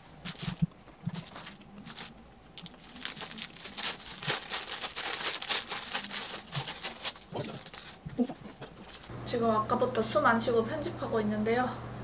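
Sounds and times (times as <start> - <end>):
paper wrapper crinkling: 0.0 - 9.1.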